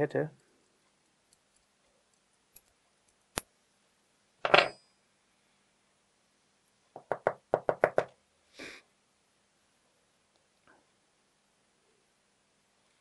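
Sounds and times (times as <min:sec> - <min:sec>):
metal parts clattering on wood: 0:04.5 - 0:04.8.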